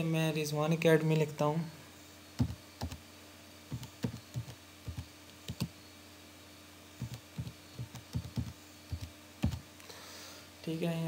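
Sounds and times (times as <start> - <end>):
keyboard typing: 2.4 - 3.0, 3.7 - 5.7, 7.0 - 9.6.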